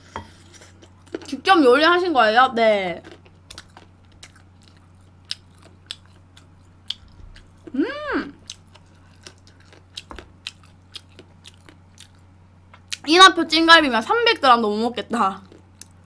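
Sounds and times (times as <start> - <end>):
person chewing: 0.3 - 1.3, 3.0 - 13.1, 15.4 - 16.0
person humming: 7.7 - 8.4.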